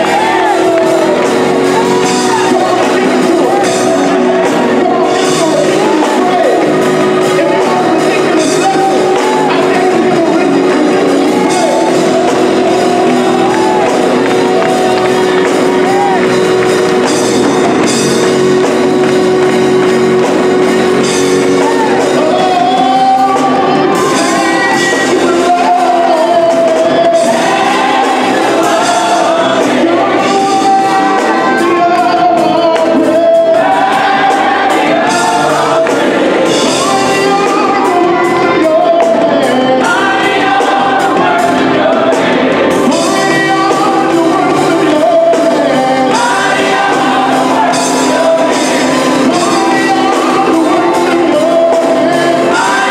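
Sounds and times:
drums: 0.0s - 52.9s
electric bass: 0.0s - 52.9s
gospel choir singing: 0.0s - 52.9s
organ: 0.0s - 52.9s.

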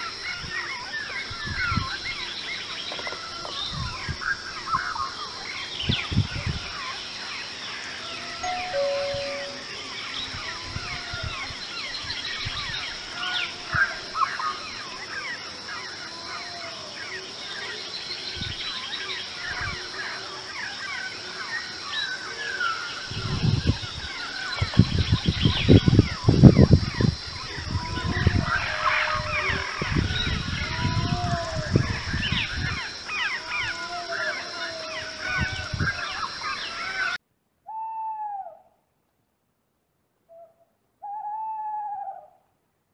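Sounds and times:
low arching bird calls: 0.0s - 38.8s
steady high hum: 8.4s - 10.0s.

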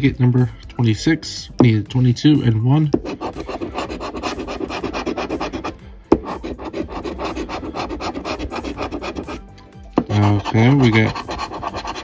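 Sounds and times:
coin scratching lottery ticket: 3.0s - 9.4s, 10.0s - 12.0s.

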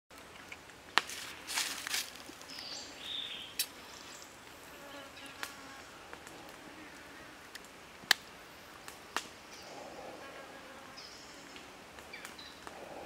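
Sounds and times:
rustle: 0.1s - 13.0s
bird chirps: 2.5s - 4.3s.

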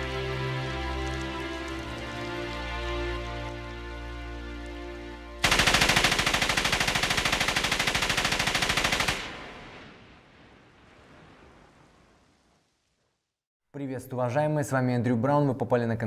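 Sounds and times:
orchestral film music: 0.0s - 6.2s
automatic gunfire: 5.4s - 10.0s.

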